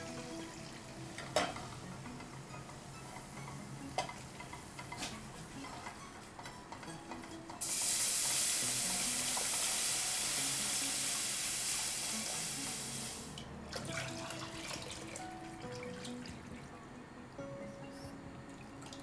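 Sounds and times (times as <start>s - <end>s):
loud sizzle and hiss: 7.6s - 13.4s
water poured into hot pan: 7.6s - 16.3s.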